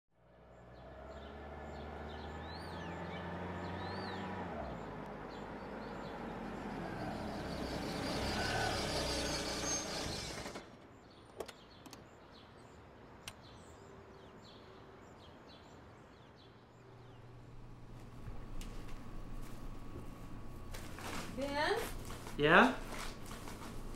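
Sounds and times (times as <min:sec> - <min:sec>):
motor vehicle approaching: 0:00.2 - 0:10.8, 0:16.7 - 0:23.9
birds chirping: 0:00.4 - 0:23.9.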